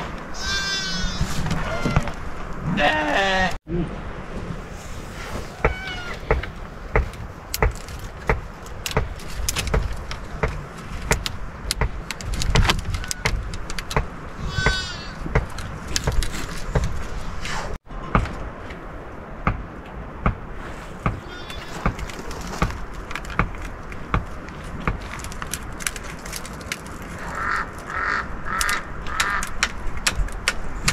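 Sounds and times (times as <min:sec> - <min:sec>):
wooden poles clicking and knocking: 0:05.6 - 0:17.2, 0:17.9 - 0:18.8, 0:21.0 - 0:30.9.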